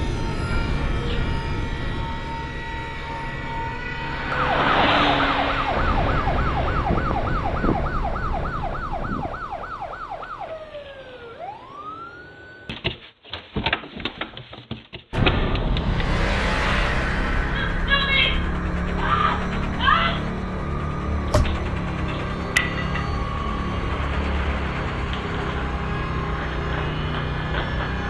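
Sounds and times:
low rumble: 0.0s - 9.7s, 15.2s - 27.6s
siren yelping: 0.0s - 12.8s, 17.6s - 28.0s.

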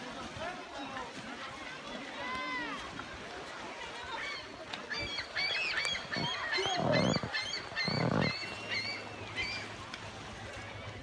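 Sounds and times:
lower bird calls: 4.3s - 9.8s.

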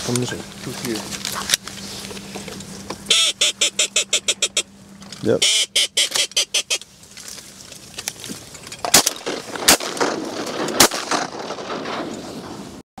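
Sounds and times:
steady background noise: 0.0s - 12.8s
shotgun shots: 8.8s - 12.1s.

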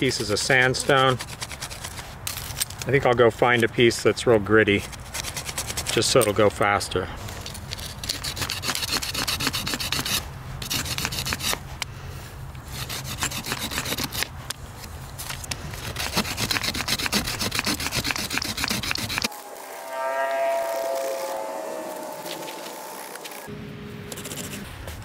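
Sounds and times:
sandstone rasping on wooden stem: 7.8s - 11.6s, 12.7s - 14.3s, 15.8s - 19.3s.

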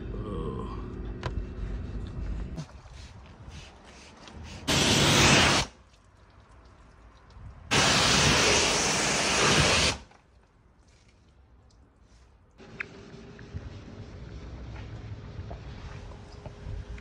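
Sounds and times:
pressure washer spraying car: 4.7s - 5.7s, 7.7s - 10.1s.

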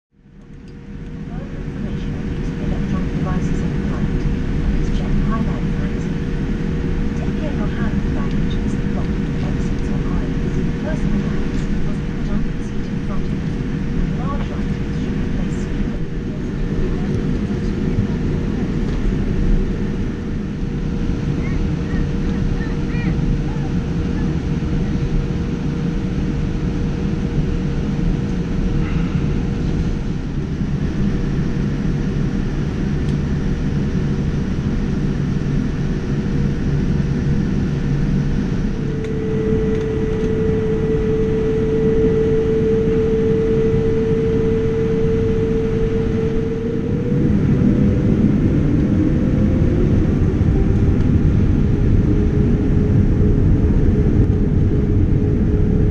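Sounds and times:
aircraft cabin rumble: 0.2s - 55.9s
jet engines humming: 0.2s - 55.9s.

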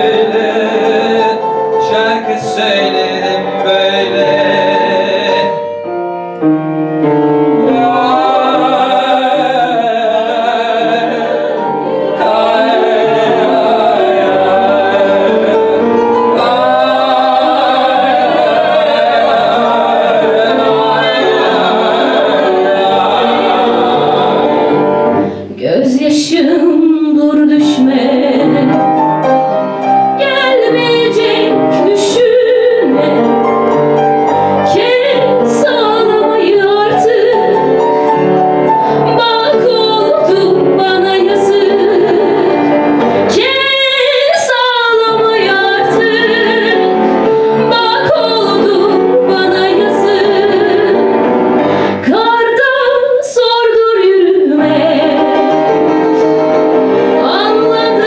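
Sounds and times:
man singing: 0.0s - 5.6s, 7.7s - 18.4s
voices singing in harmony: 0.0s - 5.9s, 7.0s - 58.0s
upright piano: 0.0s - 58.0s
woman singing: 25.4s - 28.8s, 30.2s - 33.3s, 34.7s - 37.7s, 39.0s - 42.6s, 43.3s - 47.0s, 47.6s - 51.0s, 52.0s - 55.5s, 57.2s - 58.0s.

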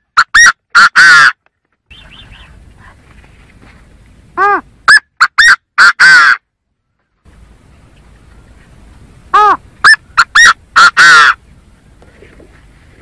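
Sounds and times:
partridge call: 0.0s - 2.9s, 4.4s - 6.4s, 7.8s - 11.5s.

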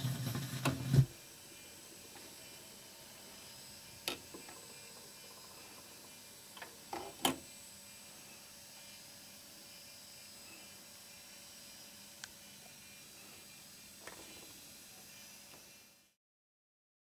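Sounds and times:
vinyl surface hiss: 0.0s - 16.2s.

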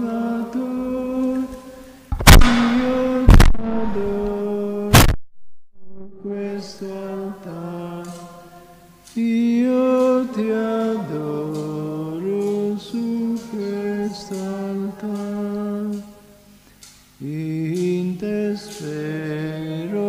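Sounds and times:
church choir singing a hymn: 0.0s - 1.9s, 6.3s - 16.5s, 17.2s - 20.0s.

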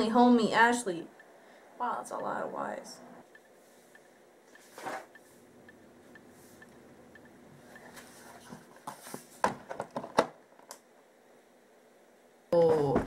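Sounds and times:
notebook pages rustling: 7.9s - 9.9s.

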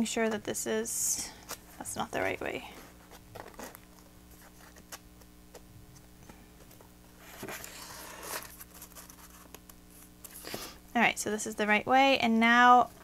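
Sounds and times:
paper rustling slide: 7.2s - 9.5s.

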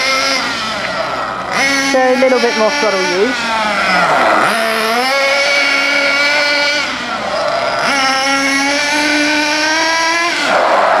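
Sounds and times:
nitro engine buzzing: 0.0s - 11.0s.

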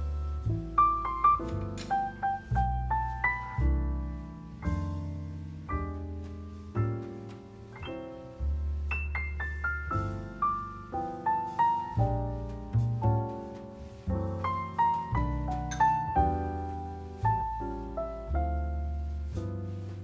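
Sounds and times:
gentle piano music: 0.0s - 20.0s.

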